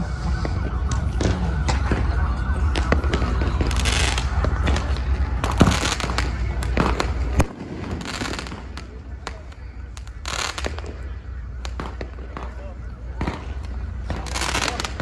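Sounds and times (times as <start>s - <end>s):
fireworks bangs and cracks: 0.0s - 15.0s
low rumble: 0.0s - 15.0s
crackling sparks hissing: 3.1s - 15.0s.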